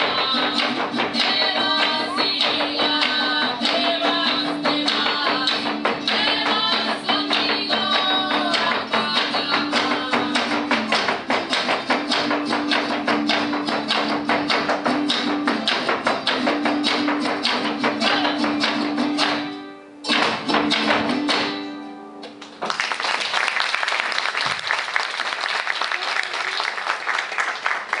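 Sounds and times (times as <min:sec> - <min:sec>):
dance footwork on wooden platform: 0:00.0 - 0:19.0
strummed string music: 0:00.0 - 0:22.6
applause: 0:22.4 - 0:28.0.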